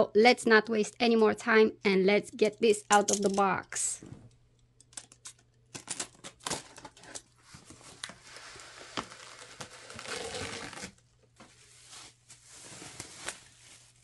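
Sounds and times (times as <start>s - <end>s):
bubble wrap crinkling: 6.4s - 14.0s.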